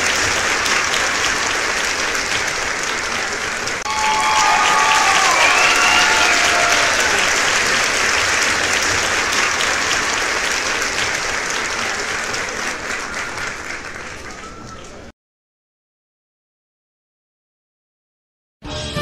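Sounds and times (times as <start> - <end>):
group of people applauding: 0.0 - 15.1.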